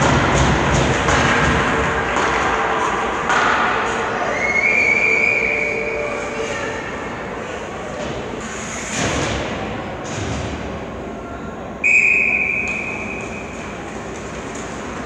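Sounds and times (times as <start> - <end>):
rink background noise: 0.0 - 15.0
referee's whistle blast: 11.8 - 13.4.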